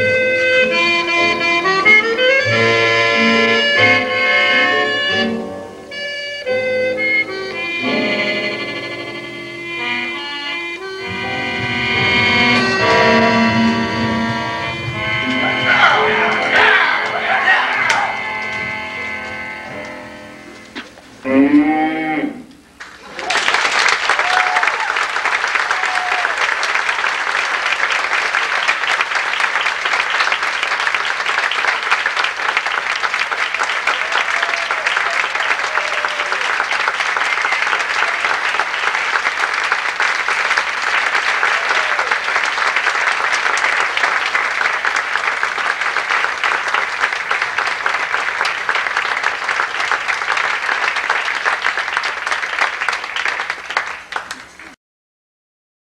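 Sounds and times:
audience applauding: 9.8 - 21.0, 22.8 - 54.8
whoops: 24.1 - 25.0, 25.6 - 26.4, 33.6 - 36.6, 41.4 - 42.2.

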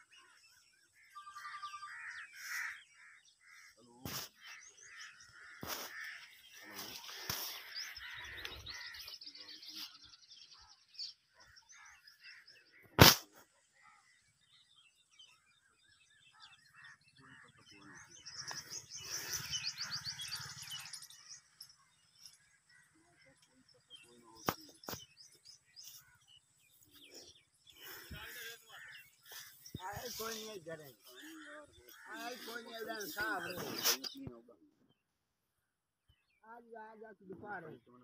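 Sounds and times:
birds chirping and trilling: 0.0 - 38.0
leaves and grass rustling: 5.6 - 9.0, 27.8 - 34.1.

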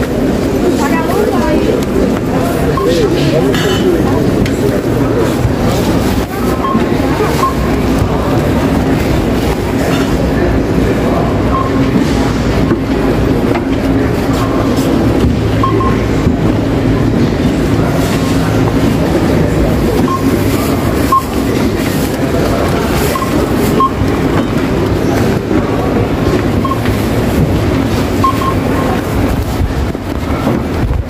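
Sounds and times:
low hum and murmur: 0.0 - 31.0
barcode scanner beeps: 2.6 - 3.2, 6.4 - 7.9, 11.5 - 12.0, 15.6 - 16.1, 20.0 - 21.6, 23.0 - 24.2, 26.6 - 27.1, 28.2 - 29.0.

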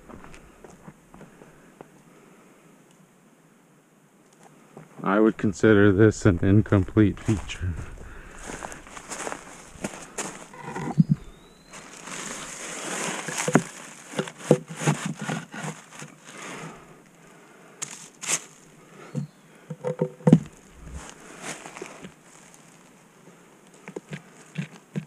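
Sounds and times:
footsteps crunching on dirt trail: 0.0 - 1.6, 5.8 - 14.6, 20.4 - 22.9.

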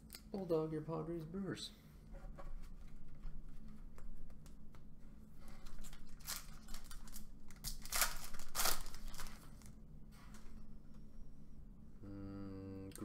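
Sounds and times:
plastic wrapper tearing and crinkling: 5.6 - 9.8.

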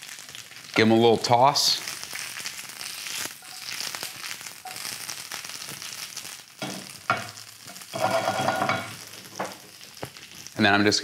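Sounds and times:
vegetables sizzling in a frying pan: 0.0 - 11.0
pan scraping on metal grate: 8.0 - 8.9.

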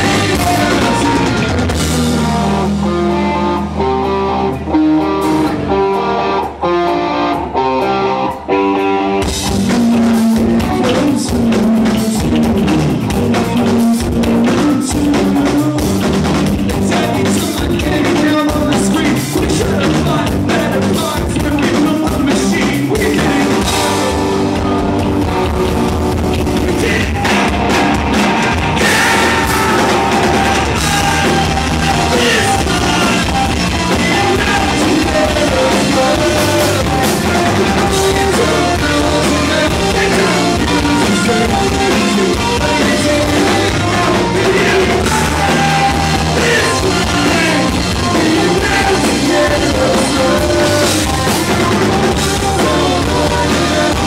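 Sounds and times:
man singing into microphone: 0.0 - 1.5, 9.6 - 12.5, 14.0 - 16.0, 16.7 - 23.9, 26.7 - 27.5, 28.8 - 51.2, 52.1 - 54.0
electric guitar: 0.0 - 54.0
rock band playing: 0.0 - 54.0.

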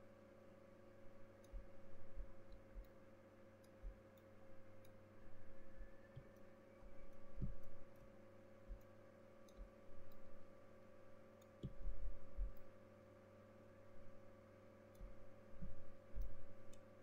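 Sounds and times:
steady electrical hum: 0.0 - 17.0
computer mouse clicks and bumps: 7.3 - 8.1, 11.6 - 12.7.

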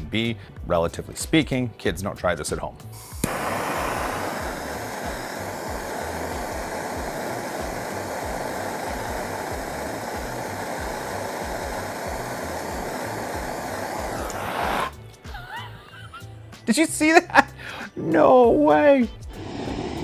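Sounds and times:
gas torch hissing: 2.8 - 15.7, 19.2 - 20.0.

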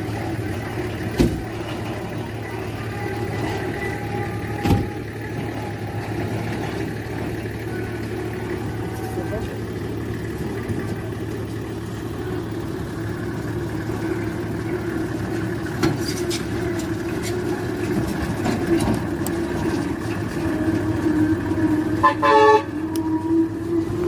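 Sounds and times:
heavy truck engine driving past: 0.0 - 24.0
vehicle horn toot: 22.0 - 23.2.

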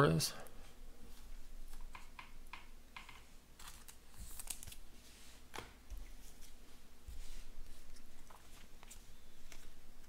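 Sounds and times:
cards rustling against each other: 3.6 - 6.6, 7.2 - 10.0.

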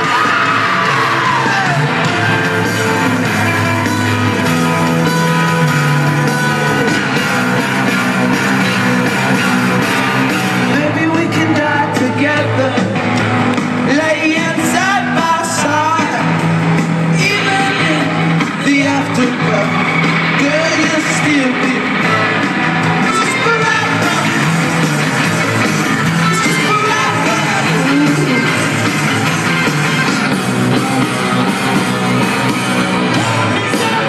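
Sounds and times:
rock band playing live: 0.0 - 34.0
man singing: 10.4 - 13.2, 13.8 - 16.5, 17.1 - 22.2, 23.1 - 24.8, 26.1 - 29.3, 33.1 - 34.0.

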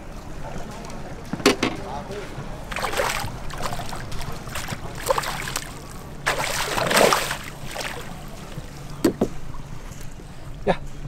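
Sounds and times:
steady low hum: 0.0 - 11.0
fish splashing in water: 2.6 - 8.6.

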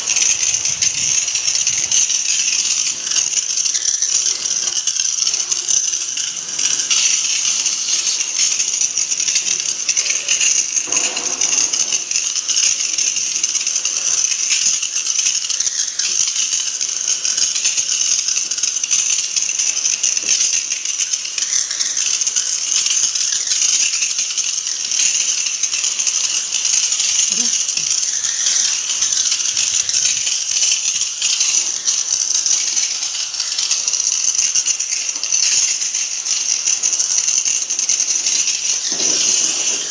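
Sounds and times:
hose spray hitting metal: 0.0 - 12.6.

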